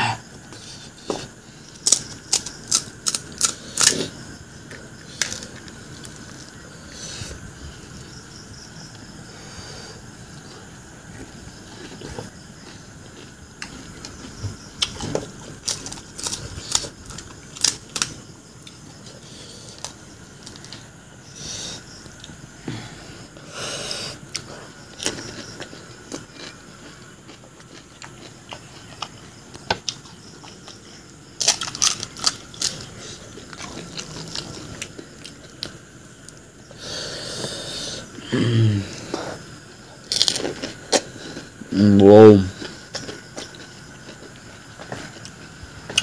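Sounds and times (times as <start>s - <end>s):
crunching fried shells: 1.7s - 7.0s, 11.1s - 20.9s, 24.3s - 36.7s, 40.0s - 41.6s.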